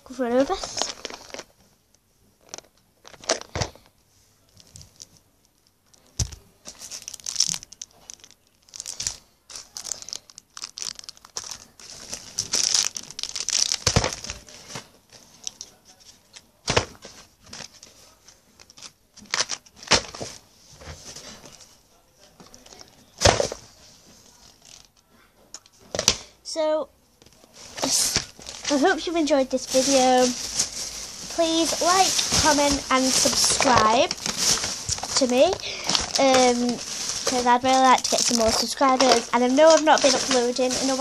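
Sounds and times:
plastic packaging crinkling: 0.4 - 1.6, 2.4 - 15.7, 16.7 - 20.4, 27.5 - 41.0.

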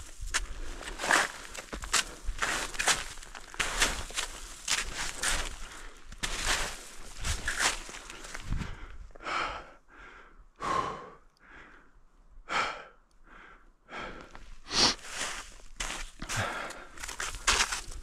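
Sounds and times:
person breathing hard: 5.1 - 6.1, 7.9 - 15.5, 16.2 - 17.7.

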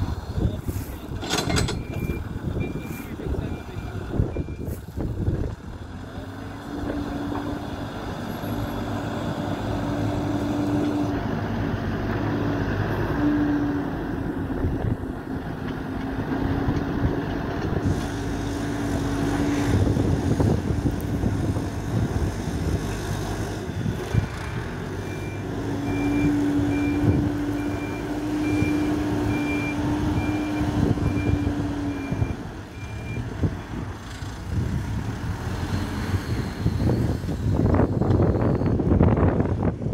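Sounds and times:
backhoe diesel engine working: 0.0 - 39.9
reversing alarm beeps: 1.5 - 4.7, 24.5 - 33.7, 35.6 - 39.2.

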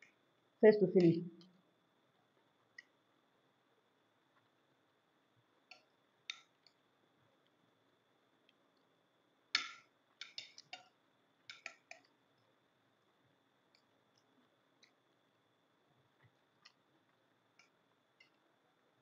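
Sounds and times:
spoons clicking on plates: 9.6 - 10.9, 11.5 - 12.1.

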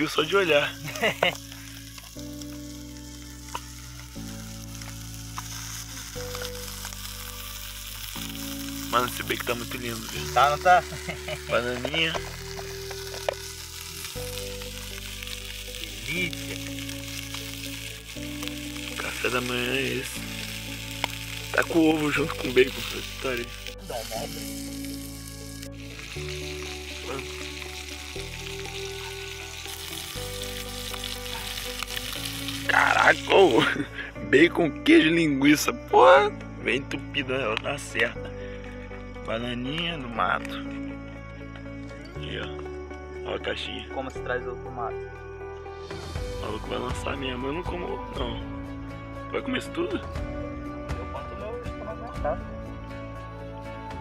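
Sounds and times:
bacon sizzling in a frying pan: 0.0 - 34.0
background music of held chords: 0.0 - 54.0.

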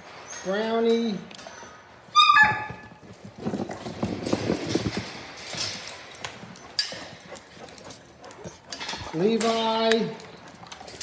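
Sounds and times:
dog claws clattering on floor: 2.8 - 11.0.

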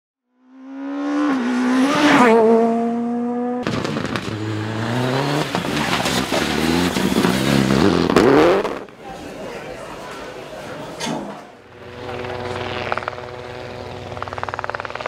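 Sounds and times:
rally car engine revving: 0.5 - 9.0, 11.5 - 15.0
exhaust cracks: 3.6 - 9.0, 11.2 - 15.0.

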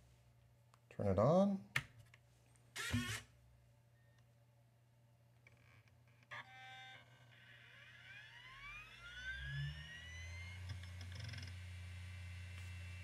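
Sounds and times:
disk drive whine rising: 6.3 - 13.0.

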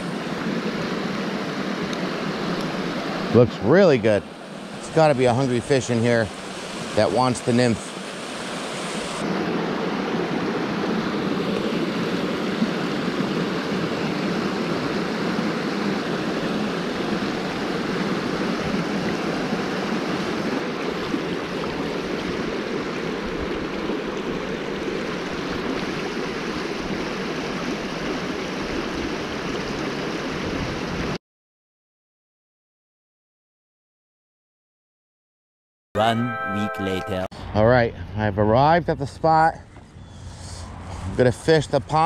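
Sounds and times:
creek rushing over rocks: 0.0 - 31.2.

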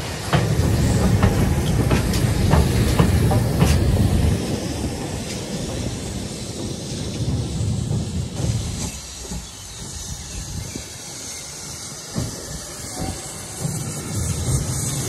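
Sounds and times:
faint steam locomotive exhaust beats: 0.0 - 15.0
steady steam hiss: 0.0 - 15.0
steam train rumbling: 0.0 - 15.0.

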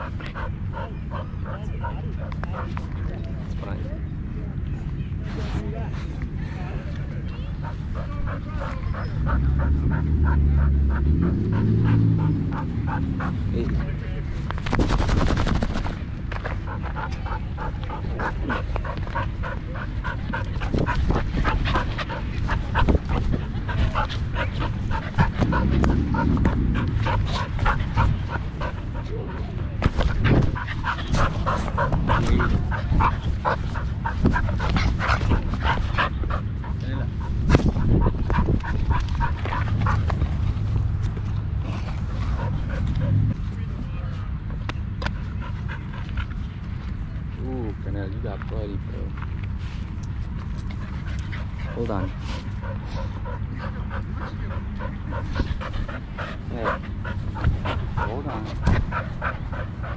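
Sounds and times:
dogs play-fighting: 0.0 - 3.9, 5.3 - 59.9
camera movement rumble: 10.5 - 47.4.

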